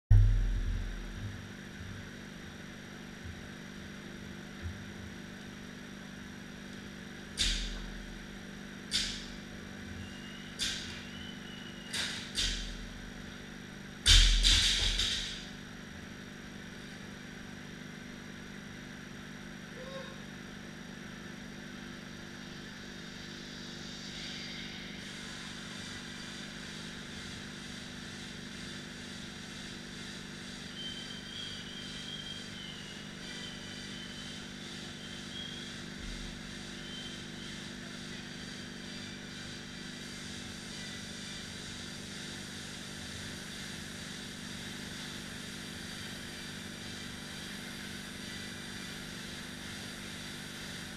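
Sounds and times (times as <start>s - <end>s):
rowing machine flywheels whirring: 21.7s - 50.9s.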